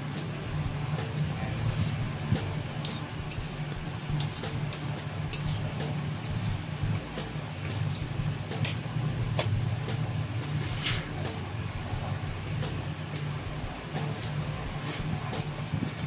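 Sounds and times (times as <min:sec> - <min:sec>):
low hum: 0:00.0 - 0:16.0
fork scraping ceramic plate: 0:06.2 - 0:06.6, 0:07.6 - 0:08.1.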